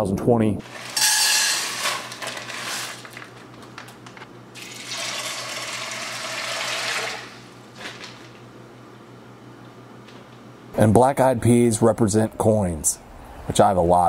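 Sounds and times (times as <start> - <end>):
water pouring into pot: 4.6 - 7.4.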